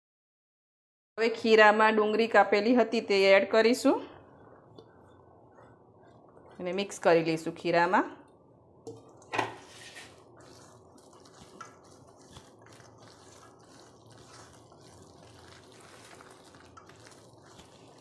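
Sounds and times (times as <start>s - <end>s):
hand squelching batter in bowl: 4.1s - 8.4s, 9.1s - 18.0s.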